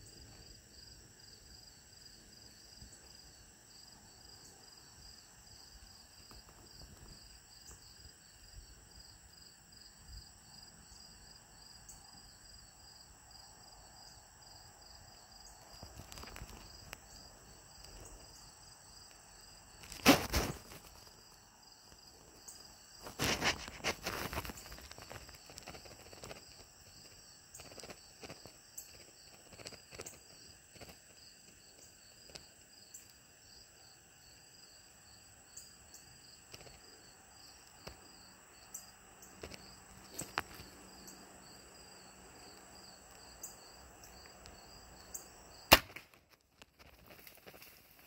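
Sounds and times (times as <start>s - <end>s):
insects chirping: 0.0s - 48.0s
faint rustles and clicks: 15.6s - 17.1s, 19.8s - 22.0s, 23.0s - 31.6s, 46.2s - 48.0s
crossbow firing crack: 19.9s - 20.6s, 45.7s - 46.3s.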